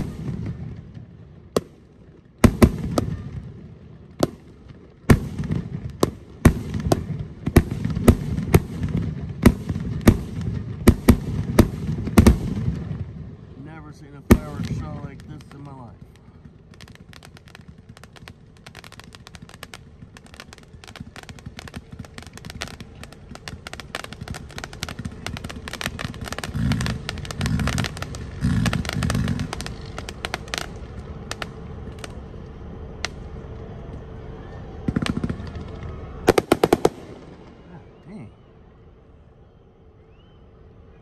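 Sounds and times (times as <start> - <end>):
heavy firework booms: 0.0 - 1.8, 2.4 - 32.1, 34.8 - 38.3
fireworks crackling pops: 0.0 - 38.4.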